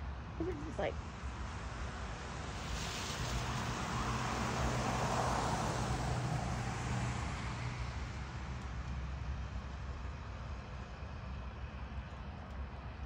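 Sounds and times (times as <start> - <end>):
road vehicle passing: 0.4 - 9.8.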